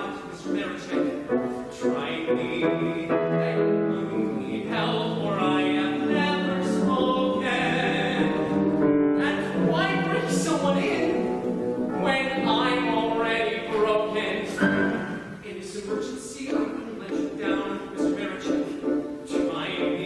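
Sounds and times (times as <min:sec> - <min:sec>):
man singing operatically: 0:00.0 - 0:20.0
piano accompaniment: 0:00.0 - 0:20.0.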